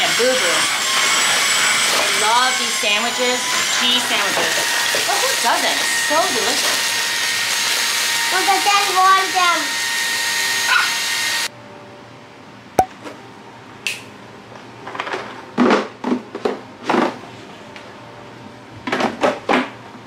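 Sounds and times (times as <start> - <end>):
handheld vacuum cleaner whining: 0.0 - 11.5.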